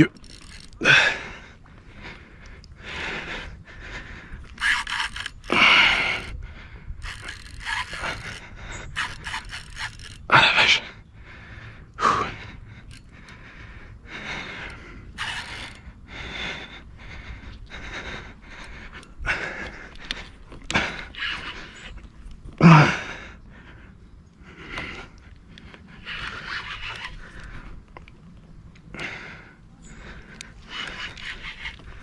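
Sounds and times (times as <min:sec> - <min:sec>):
fishing reel scraping and clicking: 0:00.0 - 0:01.2, 0:04.4 - 0:06.4, 0:07.0 - 0:10.6, 0:12.8 - 0:13.4, 0:14.6 - 0:15.9, 0:20.0 - 0:22.0, 0:25.6 - 0:27.6, 0:30.4 - 0:32.0
person breathing hard and gasping: 0:00.0 - 0:21.9.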